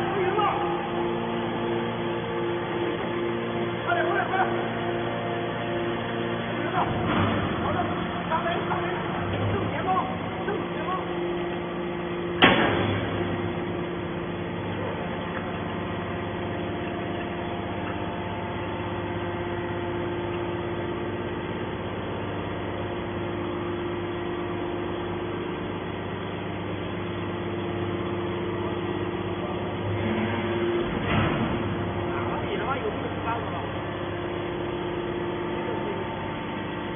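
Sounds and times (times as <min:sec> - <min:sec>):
hydraulic power unit hum: 0:00.0 - 0:36.9
sharp metallic bang: 0:12.4 - 0:13.2.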